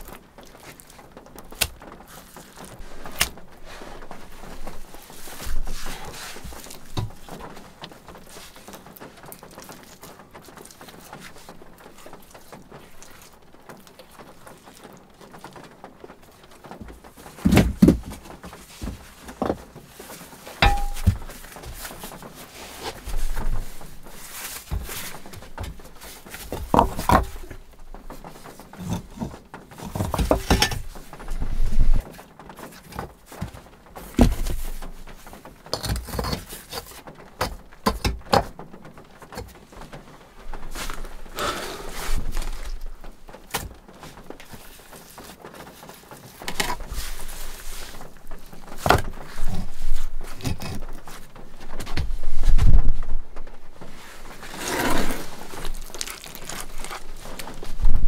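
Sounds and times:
stone knocking on stone: 0:20.6 - 0:21.2.

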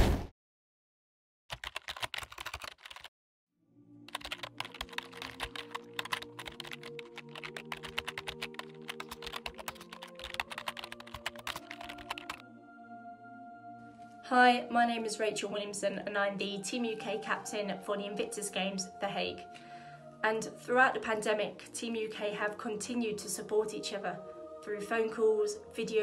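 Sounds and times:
rapid keyboard typing: 0:01.5 - 0:03.1, 0:04.1 - 0:12.4
soft synth pad: 0:11.3 - 0:14.3.

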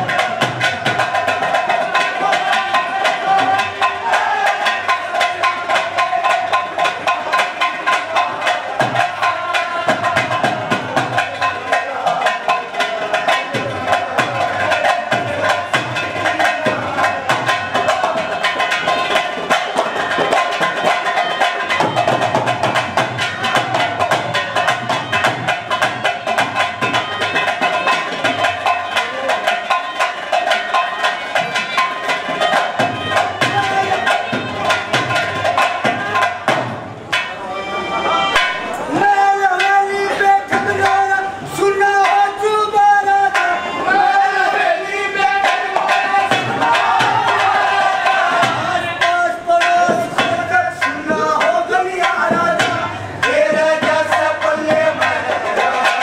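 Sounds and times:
hand drum beat: 0:00.0 - 0:37.4, 0:38.4 - 0:56.0
harmonium melody: 0:36.9 - 0:40.4.

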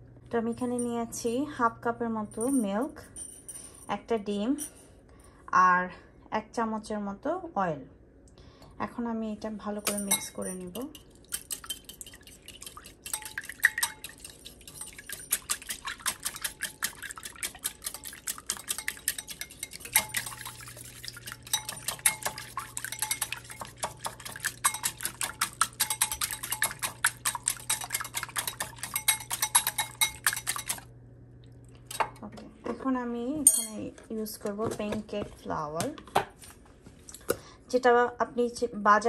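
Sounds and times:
steady low hum: 0:00.0 - 0:38.3
whisk beating in a bowl: 0:09.9 - 0:30.9.

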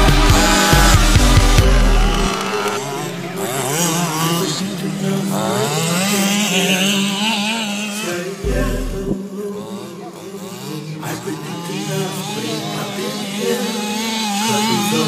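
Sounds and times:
background music: 0:00.0 - 0:04.6
two-stroke engine revving: 0:00.0 - 0:15.0.

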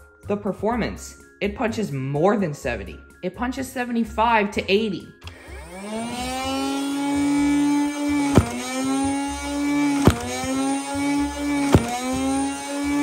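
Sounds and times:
motorized flywheels whining: 0:05.2 - 0:13.0
toy dart gun firing: 0:08.3 - 0:08.8, 0:10.0 - 0:10.6, 0:11.6 - 0:12.2.

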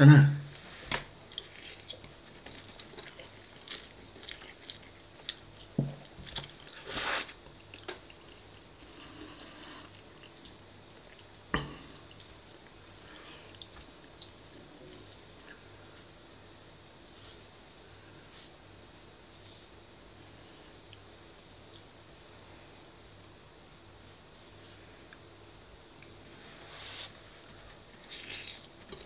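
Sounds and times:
wet mouth chewing sounds: 0:01.3 - 0:05.7, 0:27.4 - 0:29.0.

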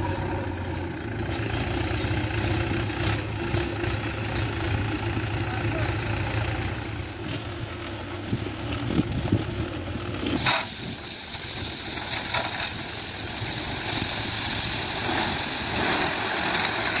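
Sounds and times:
tractor diesel engine running: 0:00.0 - 0:17.0
gravel sliding out of trolley: 0:10.3 - 0:17.0.

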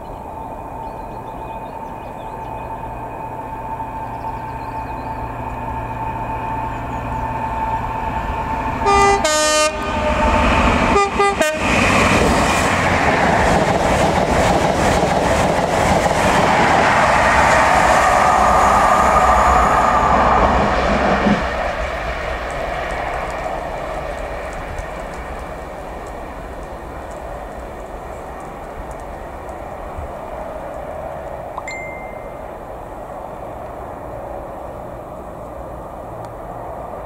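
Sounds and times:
diesel train passing: 0:00.0 - 0:37.0
two-tone train horn: 0:07.2 - 0:12.0.

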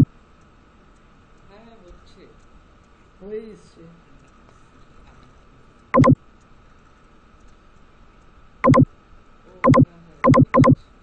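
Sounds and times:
mouse button clicks: 0:06.0 - 0:06.2.

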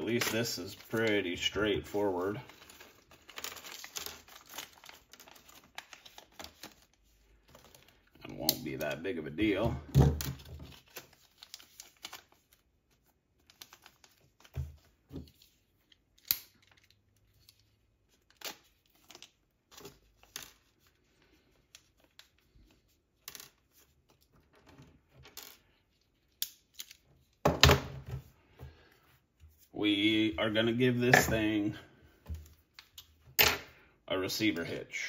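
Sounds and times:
plastic bag crinkling: 0:00.0 - 0:08.0.

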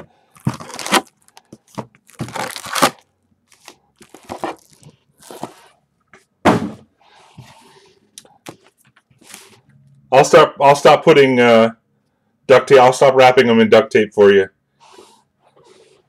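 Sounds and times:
card packs crinkling: 0:00.0 - 0:05.8.

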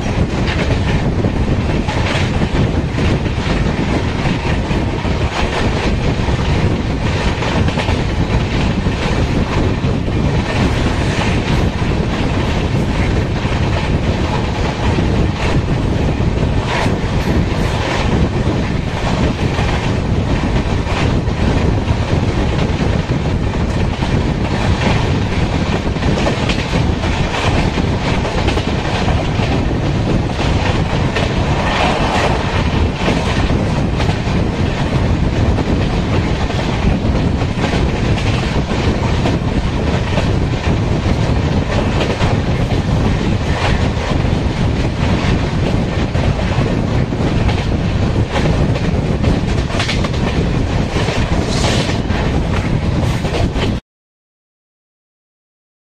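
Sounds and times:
clickety-clack over rail joints: 0:00.0 - 0:53.8
train wheels rumbling on rail: 0:00.0 - 0:53.8.

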